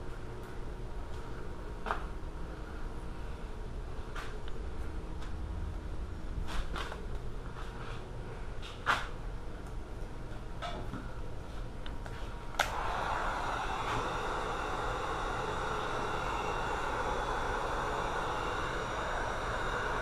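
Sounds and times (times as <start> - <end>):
heat gun fan hissing: 12.5 - 20.0
heat gun switch click: 12.6 - 12.9.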